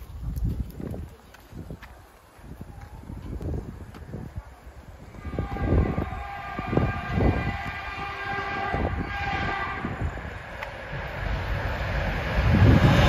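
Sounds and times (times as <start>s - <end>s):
train horn long blast: 5.1s - 11.4s.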